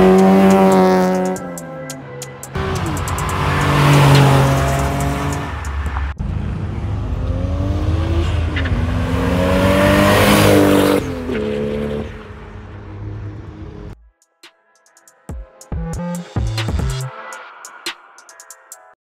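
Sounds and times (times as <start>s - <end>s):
cars accelerating past: 0.0s - 14.0s.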